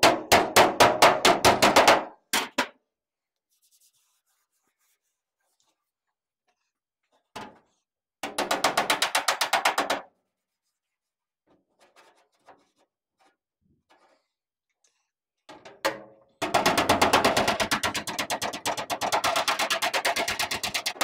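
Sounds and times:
hammer tapping sheet metal: 0.0 - 2.8, 8.2 - 10.1, 15.5 - 21.0.

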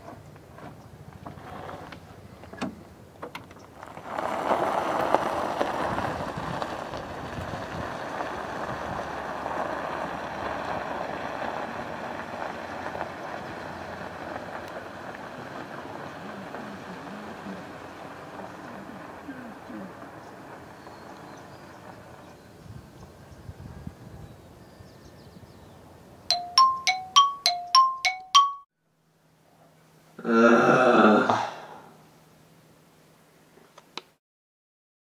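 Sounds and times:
tyres crunching on gravel: 0.0 - 2.5, 3.2 - 22.6.

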